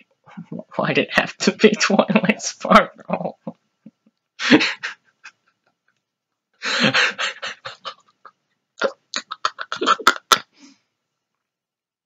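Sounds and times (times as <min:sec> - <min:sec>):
man mock sobbing: 0:06.6 - 0:10.6.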